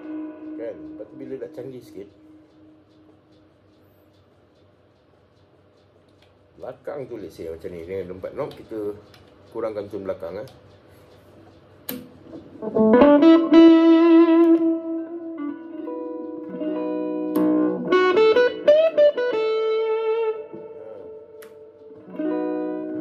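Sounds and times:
electric guitar through an amp: 0.0s - 3.1s, 11.9s - 23.0s.

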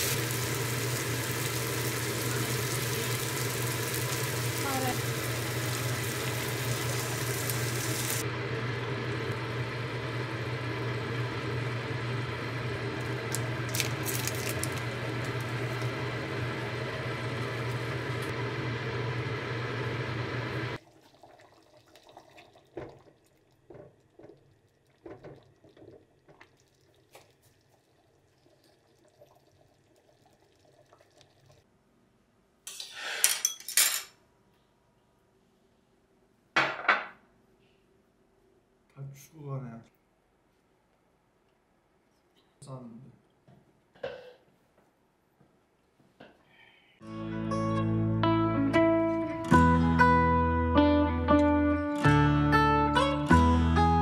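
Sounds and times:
onions sizzling in a wok: 0.0s - 20.8s
curry bubbling: 10.0s - 18.8s, 20.8s - 31.6s
tableware clinking: 32.7s - 34.2s.

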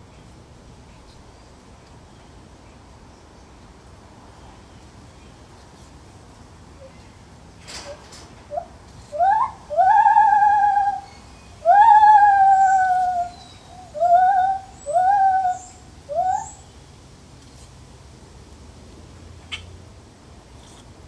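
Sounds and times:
gibbon hooting: 8.5s - 16.6s.

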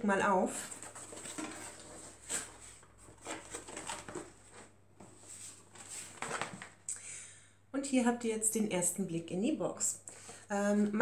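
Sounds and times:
cardboard box scraping and rustling: 0.7s - 6.3s.

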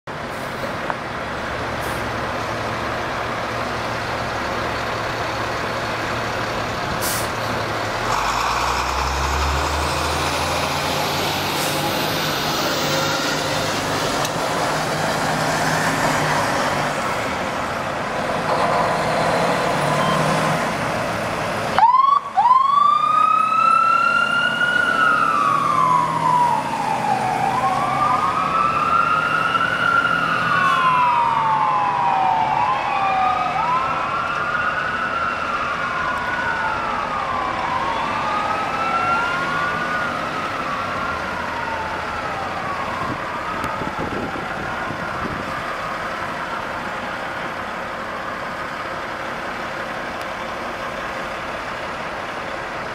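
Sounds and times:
diesel engine rumble: 0.1s - 52.9s
siren wailing: 21.8s - 47.2s.

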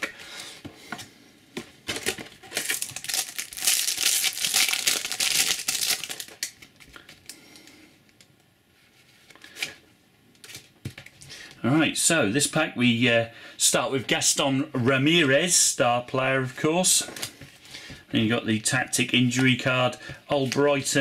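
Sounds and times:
foil pack tearing and crinkling: 2.0s - 7.2s.

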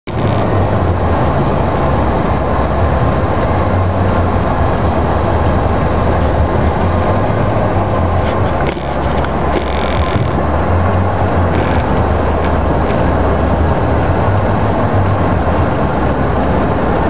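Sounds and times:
car engine and tyres rumbling: 0.0s - 17.0s.

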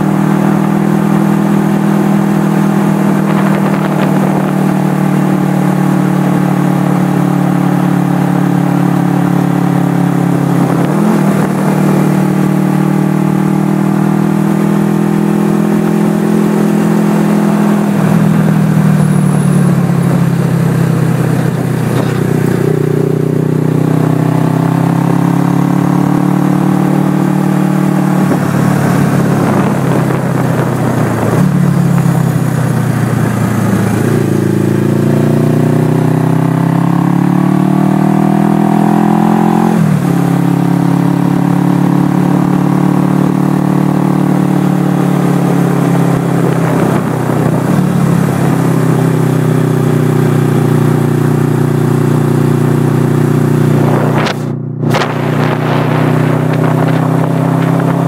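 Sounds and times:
wind noise on microphone: 0.0s - 35.3s, 44.4s - 50.8s, 53.5s - 58.0s
motorcycle engine accelerating: 0.0s - 58.0s.

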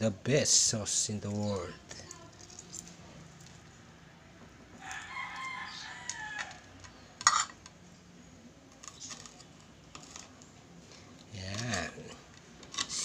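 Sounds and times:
rooster crowing: 4.8s - 6.8s.

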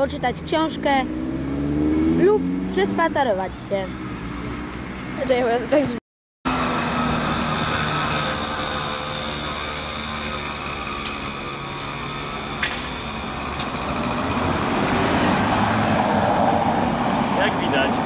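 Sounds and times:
small engine humming: 6.5s - 16.3s.

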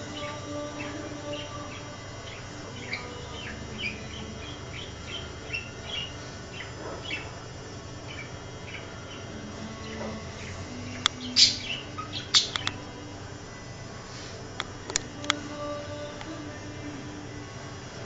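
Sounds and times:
budgerigar chirping: 0.0s - 7.4s, 8.0s - 12.8s.

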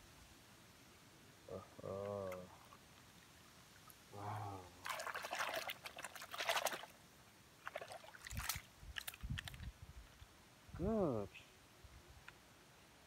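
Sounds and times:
water pouring off toy car: 4.8s - 6.9s.

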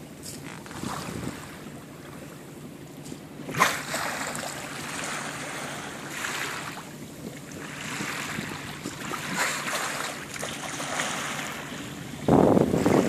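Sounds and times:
water rushing along boat hull: 0.0s - 13.0s
sharp splash: 3.5s - 6.9s, 7.6s - 11.8s.

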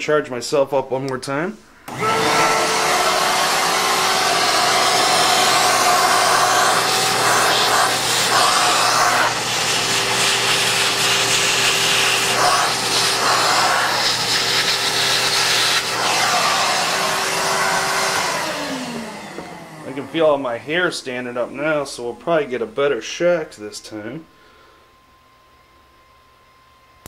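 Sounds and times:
vacuum cleaner running: 1.8s - 22.9s.

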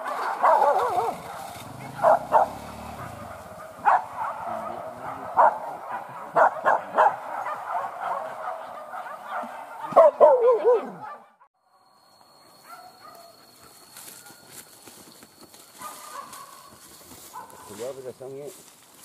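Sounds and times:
dog yelping cry: 0.0s - 11.3s
dogs barking and baying: 0.0s - 11.5s, 12.2s - 18.1s.

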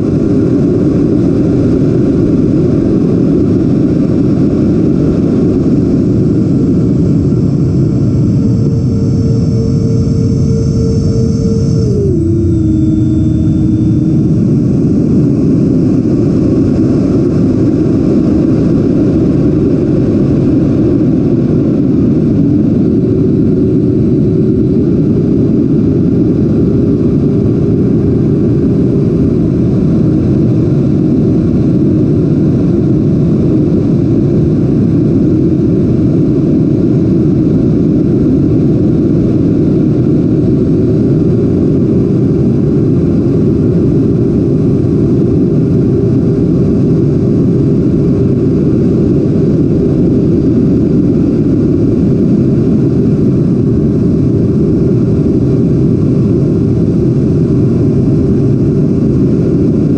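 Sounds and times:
electric ducted fan humming: 0.0s - 30.5s.

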